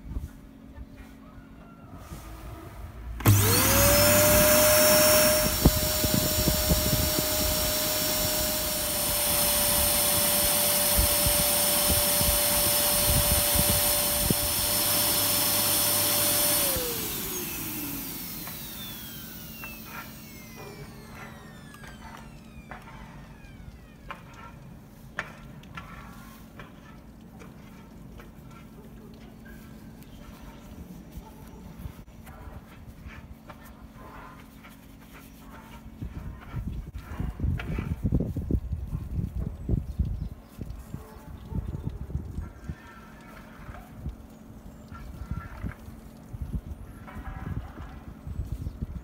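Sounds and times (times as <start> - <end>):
vacuum cleaner motor whine: 3.2 - 24.3.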